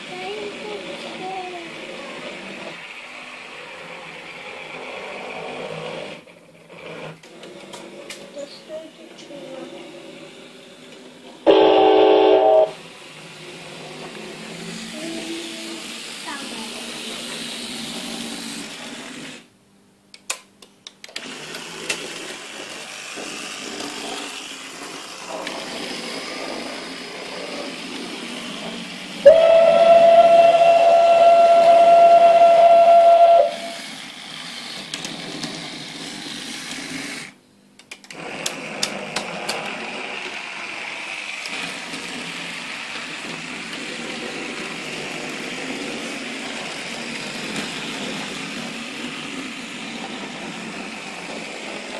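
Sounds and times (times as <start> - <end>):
running train hiss: 8.3 - 19.5, 21.3 - 37.4, 38.2 - 51.9
loud train whistle: 11.5 - 12.8, 29.2 - 33.8.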